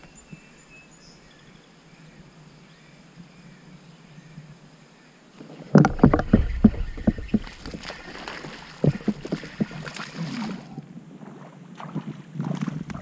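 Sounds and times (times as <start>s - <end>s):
knocks and thumps on kayak: 5.7s - 10.7s.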